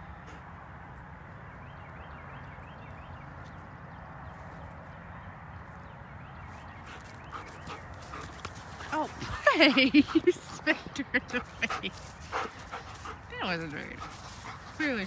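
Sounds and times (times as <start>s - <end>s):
dogs scuffling on grass: 6.5s - 10.8s, 11.4s - 15.0s.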